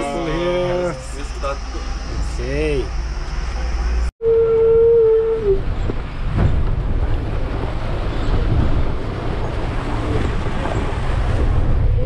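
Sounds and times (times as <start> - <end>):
bus engine and road rumble: 0.0 - 12.0
bus jolts: 5.6 - 12.0.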